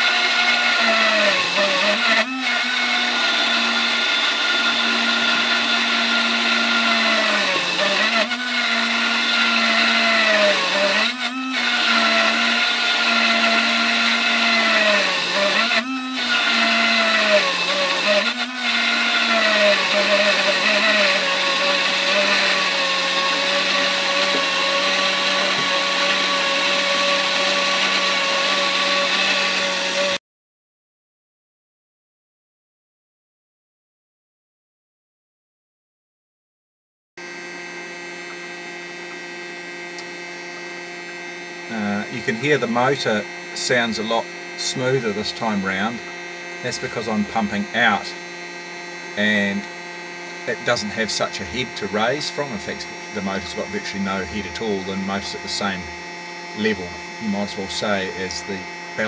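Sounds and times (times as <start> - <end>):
water pump motor whining: 0.0 - 30.2, 37.2 - 59.0.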